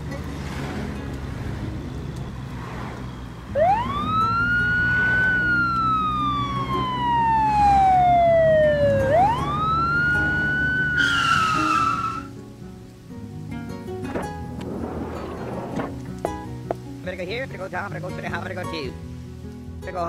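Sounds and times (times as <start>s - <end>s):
cartoon siren wailing: 3.6s - 12.3s.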